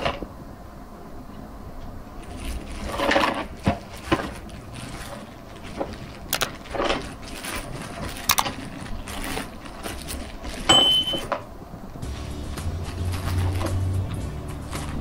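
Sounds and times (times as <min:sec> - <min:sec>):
rustling handling noise: 0:01.9 - 0:15.0
sharp clicks: 0:06.3 - 0:06.6
short high beep: 0:10.7 - 0:11.3.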